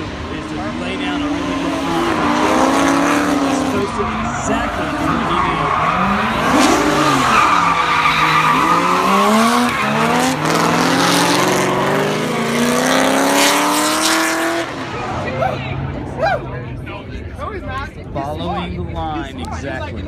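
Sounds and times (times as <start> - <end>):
car engines revving: 0.0 - 20.0
tyres squealing and skidding: 1.2 - 16.6.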